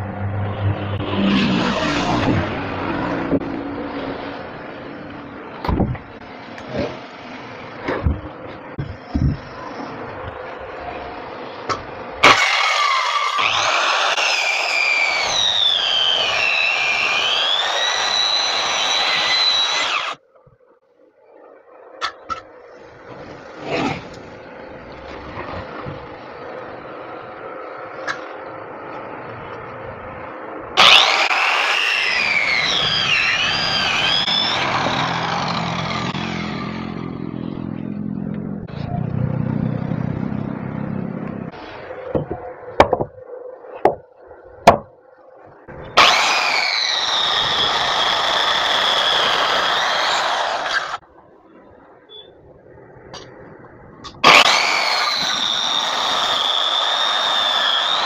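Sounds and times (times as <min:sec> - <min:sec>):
circular saw cutting log: 0:00.0 - 0:05.2, 0:08.6 - 0:20.2, 0:30.8 - 0:37.5, 0:45.7 - 0:51.0, 0:54.1 - 0:58.0.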